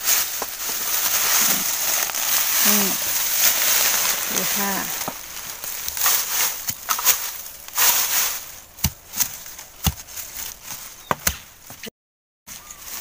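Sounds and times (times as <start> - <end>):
dry leaves rustling: 0.0 - 11.8, 12.5 - 13.0
metal blade chopping soil: 2.2 - 10.5.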